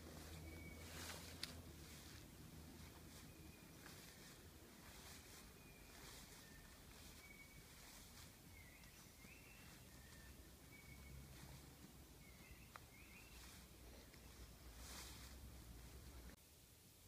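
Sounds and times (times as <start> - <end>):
faint hiss: 0.0 - 17.0
faint high chirps: 2.8 - 15.3.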